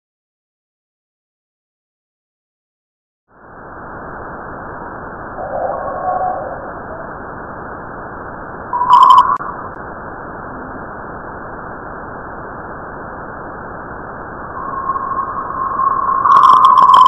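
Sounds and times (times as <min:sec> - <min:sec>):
steady hiss: 0:03.4 - 0:17.0
steady tone: 0:03.4 - 0:17.0
rapid pulsing chirp: 0:08.8 - 0:09.6, 0:14.5 - 0:17.0.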